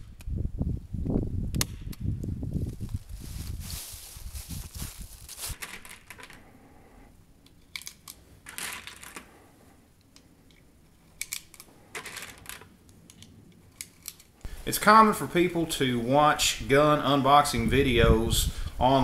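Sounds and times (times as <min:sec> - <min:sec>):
dry leaves rustling: 0:02.4 - 0:06.1
cartridges clicking into magazine: 0:11.2 - 0:11.7.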